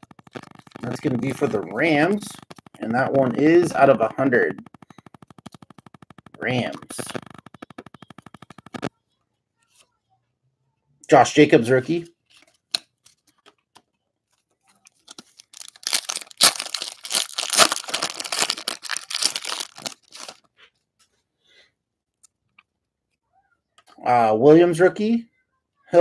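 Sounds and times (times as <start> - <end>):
card pack wrapper tearing: 0.0 - 2.8, 15.1 - 20.4.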